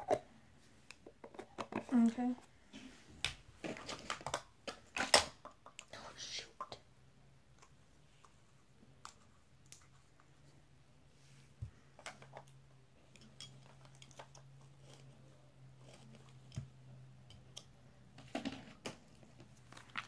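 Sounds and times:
makeup containers clicking and tapping: 0.9 - 2.1.

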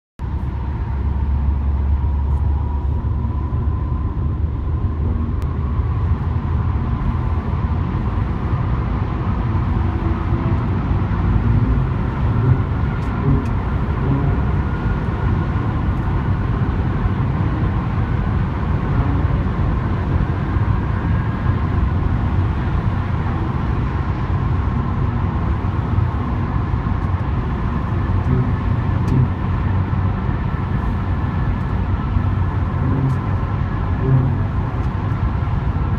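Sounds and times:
car interior road rumble: 0.2 - 35.9
faint whine: 18.8 - 35.9.

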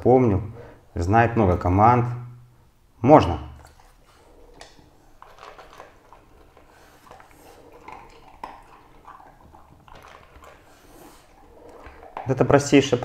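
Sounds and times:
dog crunching kibble: 3.6 - 13.0.

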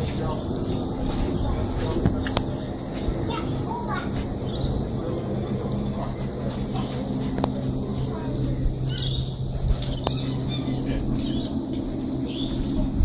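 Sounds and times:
high insect drone: 0.0 - 13.0
low steady hum: 0.0 - 13.0
bird chirps: 8.8 - 12.8.

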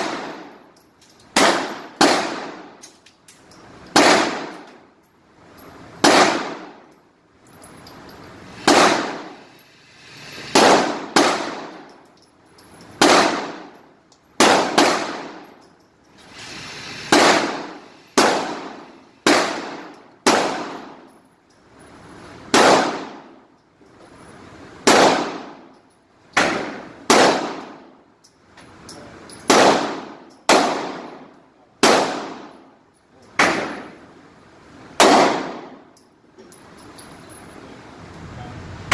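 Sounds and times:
handgun shots with echo: 0.0 - 0.5, 1.3 - 2.8, 3.9 - 4.7, 6.0 - 6.8, 8.6 - 9.4, 10.5 - 11.9, 13.0 - 13.8, 14.4 - 15.5, 17.1 - 21.0, 22.5 - 23.3, 24.8 - 25.7, 26.4 - 27.8, 29.5 - 32.6, 33.4 - 34.0, 35.0 - 35.9.

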